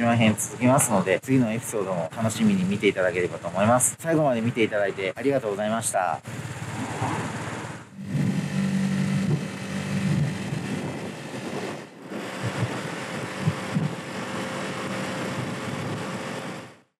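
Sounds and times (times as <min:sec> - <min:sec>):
small motorbike engine running: 0:00.2 - 0:16.8
wind and road noise: 0:06.2 - 0:16.9.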